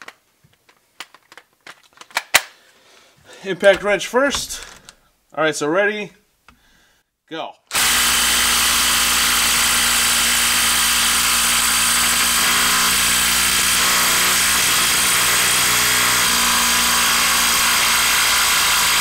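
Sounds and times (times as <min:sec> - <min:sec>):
impact wrench hammering: 0:07.7 - 0:19.0.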